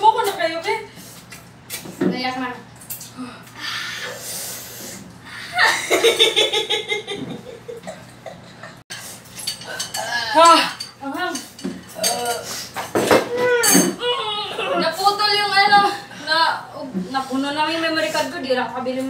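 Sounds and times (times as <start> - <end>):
dishes and cutlery clinking: 8.9 - 14.1.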